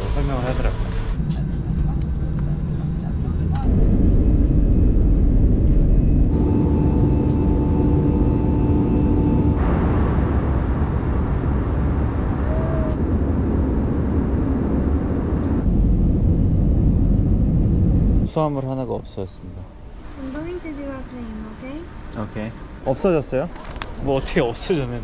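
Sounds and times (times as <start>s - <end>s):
jet engine cabin rush: 0.0s - 19.3s
two-tone hum: 0.6s - 16.1s.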